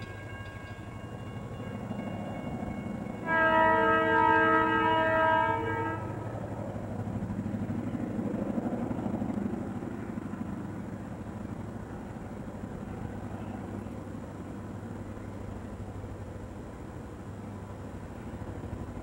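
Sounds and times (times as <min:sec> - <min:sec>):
passing train rumble: 0:00.0 - 0:19.0
train horn blast: 0:03.2 - 0:06.2.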